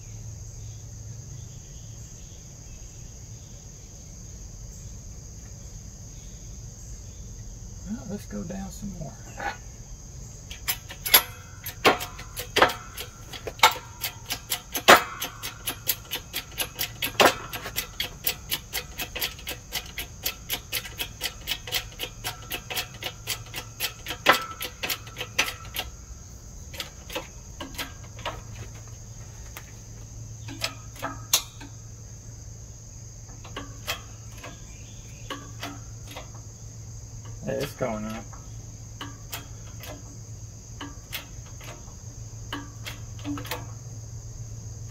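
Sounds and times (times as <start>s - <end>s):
hydraulic jack pump clicking: 10.4s - 28.9s, 30.4s - 31.9s, 33.3s - 36.5s, 37.2s - 43.8s.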